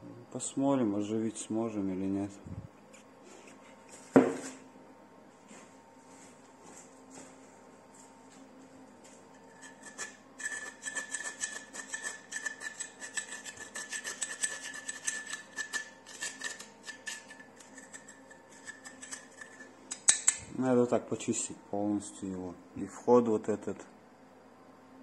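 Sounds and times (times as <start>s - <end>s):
scraping scale: 9.3s - 19.7s.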